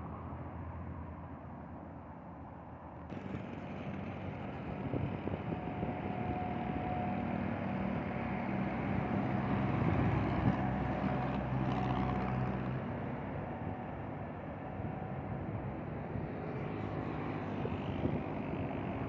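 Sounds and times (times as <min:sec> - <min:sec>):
truck driving past: 0:03.1 - 0:13.4.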